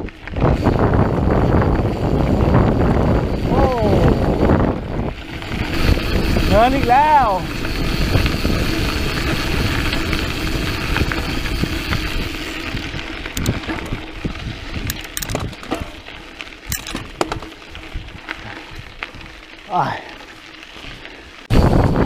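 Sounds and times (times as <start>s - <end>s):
bike clicking and rattling: 0.0s - 22.0s
wind rushing: 0.3s - 16.0s, 21.5s - 22.0s.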